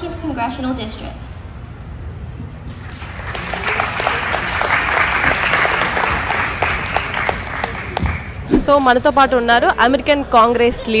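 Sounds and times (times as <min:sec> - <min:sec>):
audience applauding: 0:02.7 - 0:08.4.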